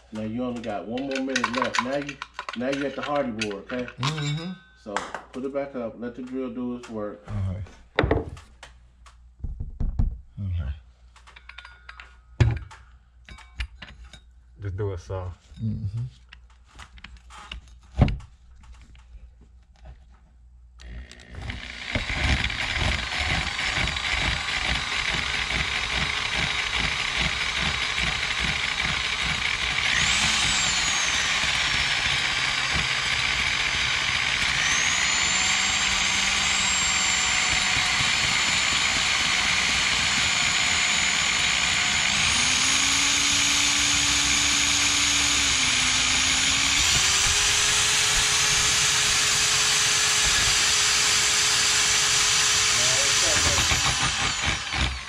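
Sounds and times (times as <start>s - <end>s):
drill hole saw cutting wood: 20.8s - 55.0s.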